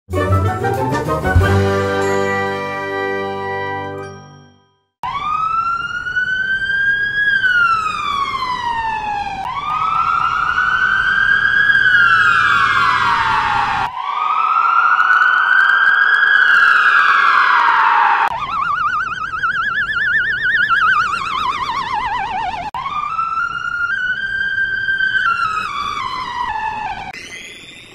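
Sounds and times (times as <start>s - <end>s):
fire truck siren wailing: 5.0s - 27.2s.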